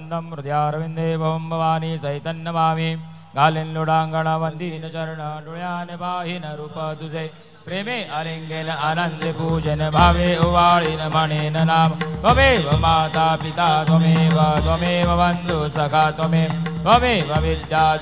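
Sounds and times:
man chanting into a microphone: 0.0 - 18.0.

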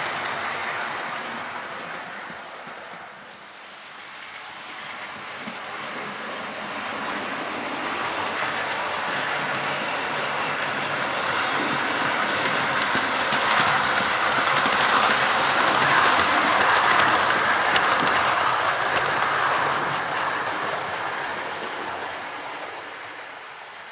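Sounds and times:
wheels clicking over rail joints: 11.6 - 19.4.

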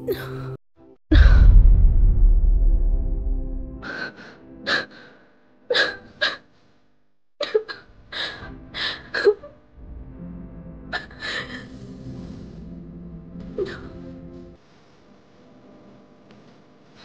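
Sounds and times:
woman sobbing with gasping breaths: 7.4 - 9.6, 10.9 - 11.9.

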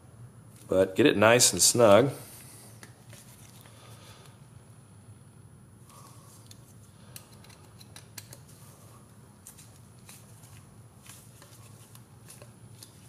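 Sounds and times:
screwdriver clicking and scraping: 6.4 - 8.6.

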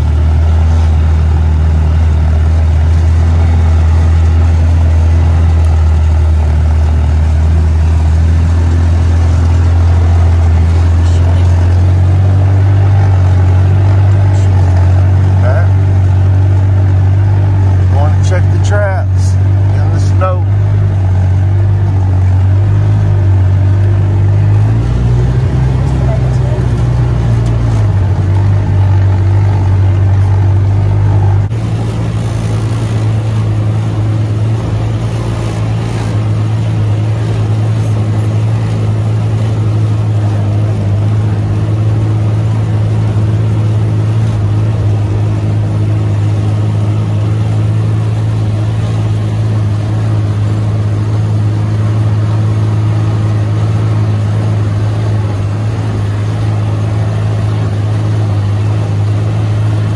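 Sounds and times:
vehicle engine droning: 0.0 - 59.9.

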